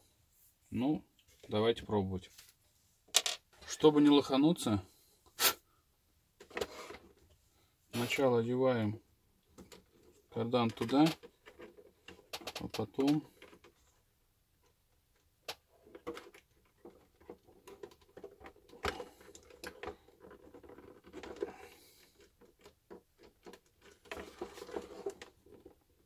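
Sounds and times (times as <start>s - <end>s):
plastic and metal parts clicking: 9.5s - 13.8s, 15.1s - 26.0s.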